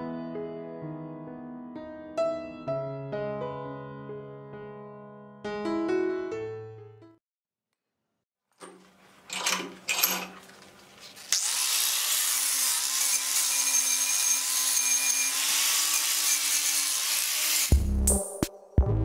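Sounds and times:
electric power tool whining: 11.3s - 17.7s.

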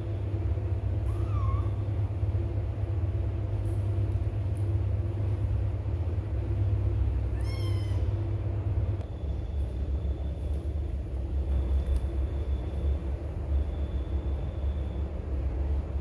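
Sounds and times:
cat meowing: 1.0s - 1.9s, 7.3s - 8.2s.

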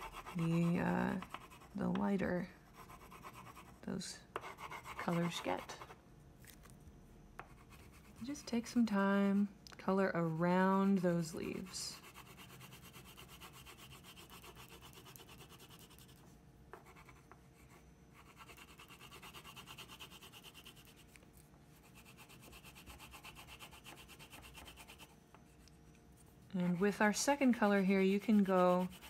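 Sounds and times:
crayon scribbling on paper: 0.0s - 1.8s, 4.4s - 5.9s, 11.6s - 16.2s, 18.2s - 21.1s, 21.8s - 25.1s, 28.1s - 29.0s.

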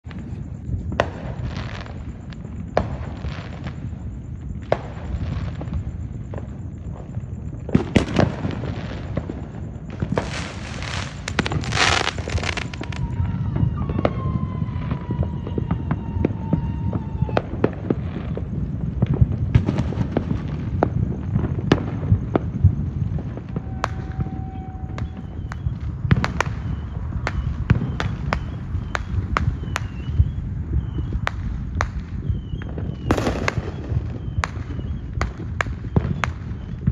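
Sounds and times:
distant fireworks rumble: 0.0s - 36.9s
fireworks pops and cracks: 0.0s - 36.9s.

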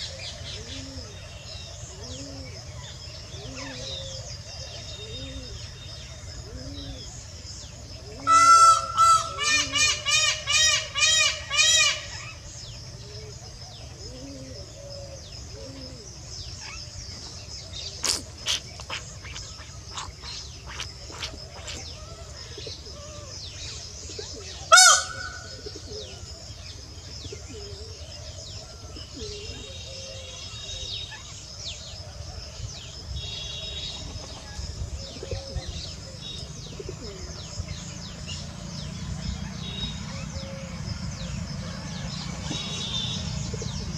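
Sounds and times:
birds chirping: 0.0s - 43.9s
loud bird call: 8.1s - 12.4s, 17.7s - 26.2s, 39.2s - 43.9s.

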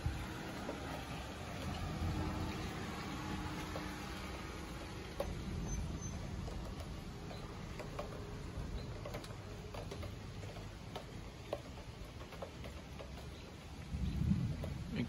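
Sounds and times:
low thunder rumble: 0.0s - 9.1s, 13.8s - 15.0s.

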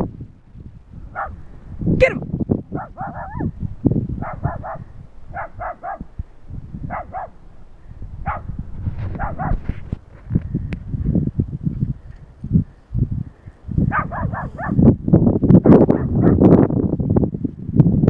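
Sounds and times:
small dog yapping: 2.0s - 3.5s, 4.2s - 4.8s, 5.4s - 6.0s, 6.9s - 7.3s, 9.1s - 9.6s, 13.9s - 14.8s.

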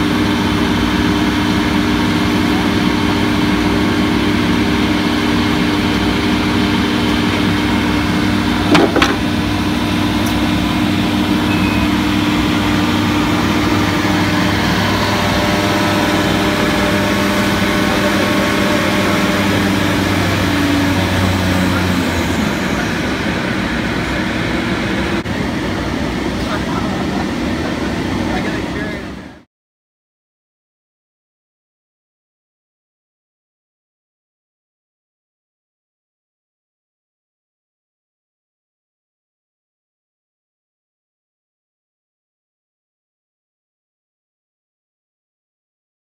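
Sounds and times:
woodworking machine humming drone: 0.0s - 29.5s
short knock: 8.7s - 9.2s.

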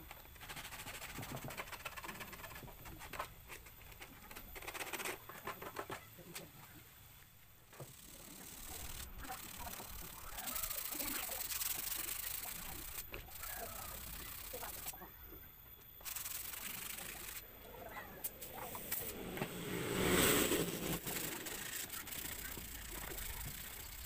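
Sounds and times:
rubbing hiss: 18.2s - 24.0s.

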